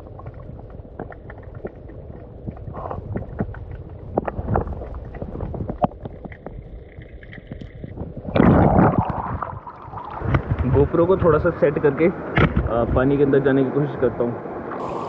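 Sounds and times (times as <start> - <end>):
water splashing around wading person: 0.0 - 11.0
wind rumble on microphone: 0.0 - 15.0.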